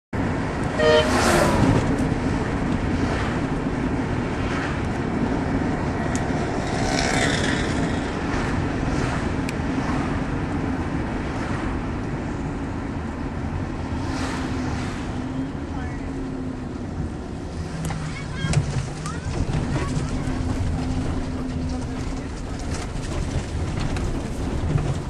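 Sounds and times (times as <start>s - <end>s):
car road and engine noise: 0.2s - 25.0s
short pitched tone: 0.8s - 1.7s.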